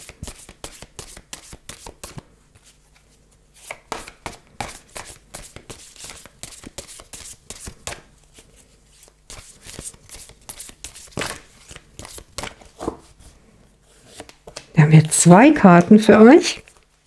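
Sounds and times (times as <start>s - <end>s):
cards being shuffled: 0.1s - 13.1s.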